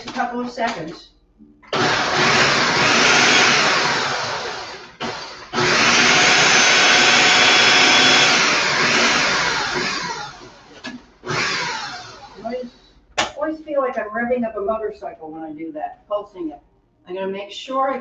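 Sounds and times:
food processor motor chopping: 1.7s - 12.4s.

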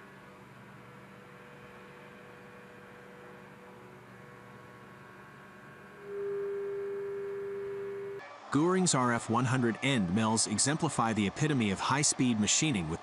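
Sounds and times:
milling machine hum: 3.0s - 8.6s.

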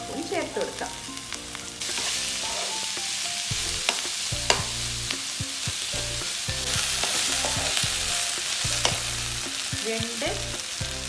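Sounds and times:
onions sizzling in a pan: 0.0s - 11.0s
spatula clicking against pan: 7.0s - 10.2s.

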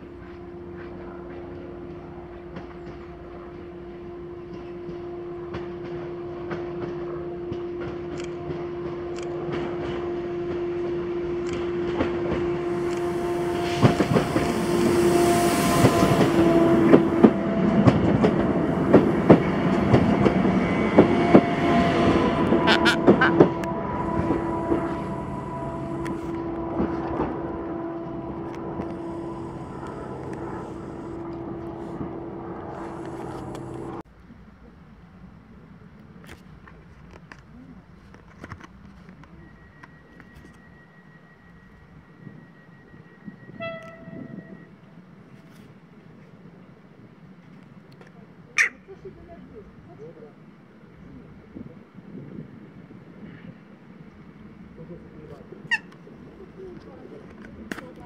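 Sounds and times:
steady humming tone: 0.0s - 34.0s
train passing: 0.0s - 58.0s.

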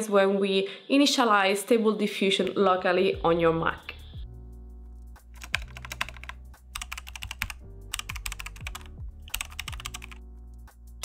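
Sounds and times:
keyboard typing: 5.4s - 10.2s.

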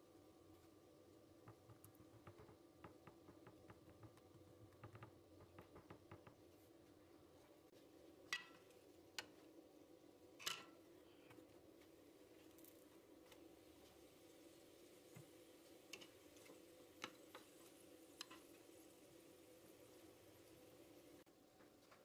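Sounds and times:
fingers pressing dough on wood: 1.4s - 6.5s.

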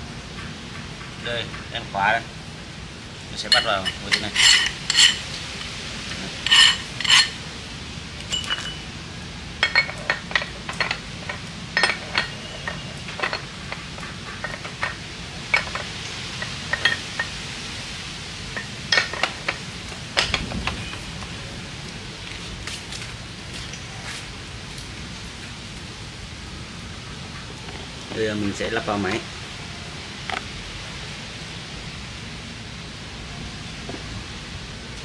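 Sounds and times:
metal parts clinking: 3.4s - 5.7s, 6.4s - 7.4s, 8.3s - 8.8s, 9.6s - 17.3s, 18.6s - 19.6s.

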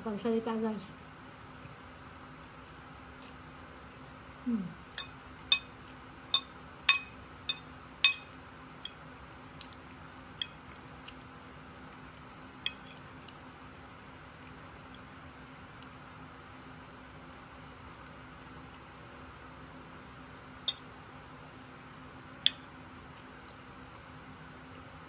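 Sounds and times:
fork clinking on ceramic plate: 5.0s - 5.7s, 6.3s - 8.4s.

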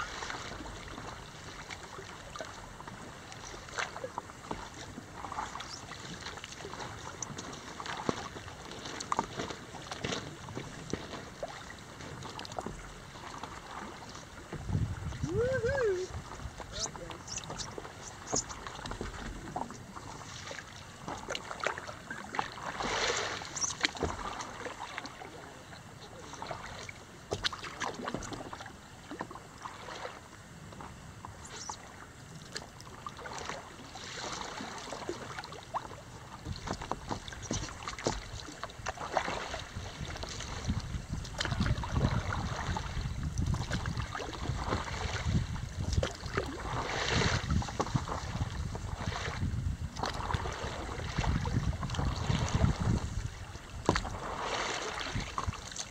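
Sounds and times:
water lapping against paddleboard: 0.0s - 55.9s
wind buffeting microphone: 14.4s - 20.0s, 39.6s - 54.4s.

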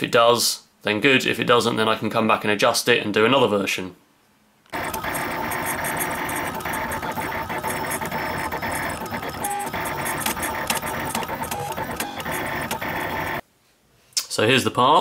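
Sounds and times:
steady whine: 4.8s - 13.4s
stepper motors buzzing and whirring: 4.8s - 13.4s.

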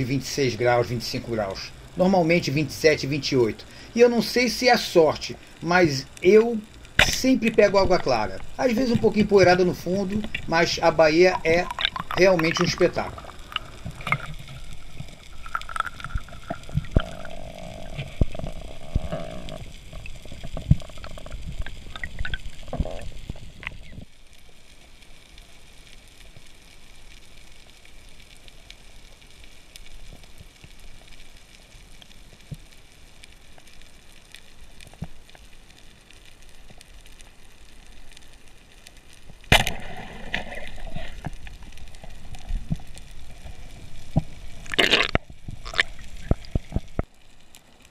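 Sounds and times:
muffled underwater noise: 5.3s - 21.4s
bubbling and gurgling: 6.7s - 24.1s, 39.5s - 47.2s
knocks and clicks underwater: 7.0s - 10.5s, 11.3s - 24.1s, 39.3s - 47.2s.

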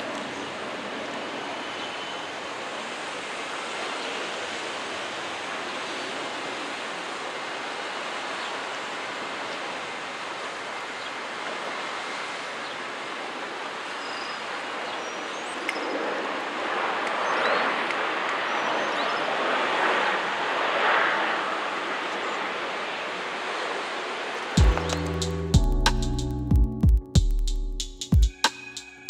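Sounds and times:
steady rushing noise: 15.6s - 26.3s.

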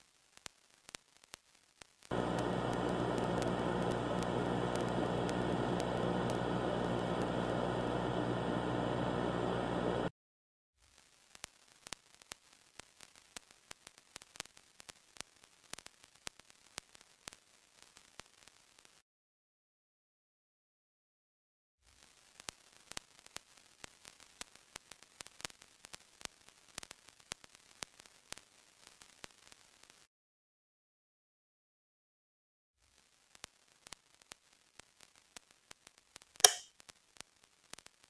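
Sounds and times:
faint crackle with clicks: 0.0s - 10.1s, 10.8s - 19.0s, 21.8s - 30.1s, 32.8s - 38.0s
static hiss: 0.0s - 10.1s, 10.8s - 19.0s, 21.9s - 30.1s, 32.8s - 38.0s
low hum: 2.1s - 10.1s.

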